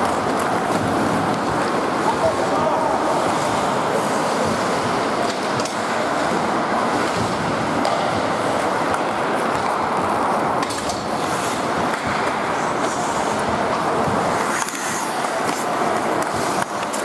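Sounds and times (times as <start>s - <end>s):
echoing hall noise: 0.0s - 17.0s
skates scraping ice: 0.0s - 17.0s
hockey stick hitting puck: 4.4s - 17.0s.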